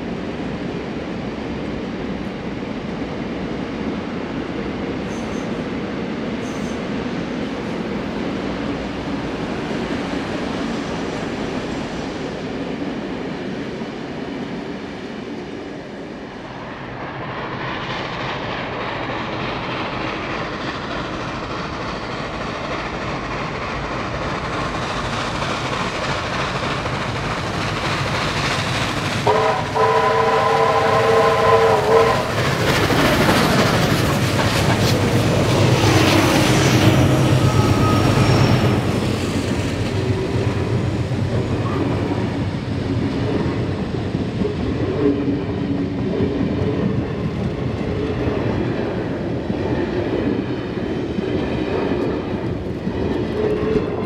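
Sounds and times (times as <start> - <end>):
steam train running and exhaust: 0.0 - 54.0
locomotive whistle blast: 29.3 - 32.4, 37.3 - 38.8.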